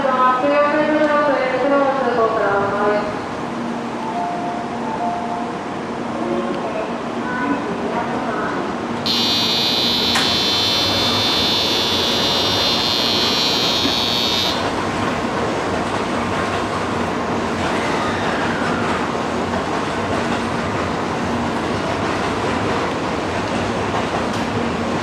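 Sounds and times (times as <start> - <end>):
train humming at platform: 0.0 - 25.0
electric platform departure bell ringing: 9.1 - 14.9.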